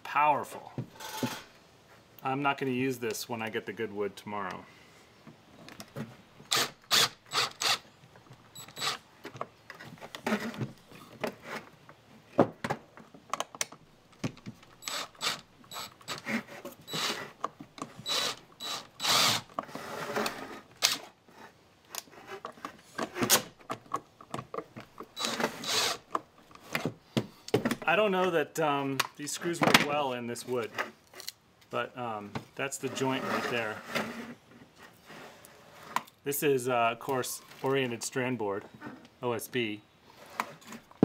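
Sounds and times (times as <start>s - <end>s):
impact driver ratcheting: 6.5s - 7.9s, 8.6s - 9.0s, 14.8s - 16.3s, 17.9s - 19.6s, 25.0s - 26.1s.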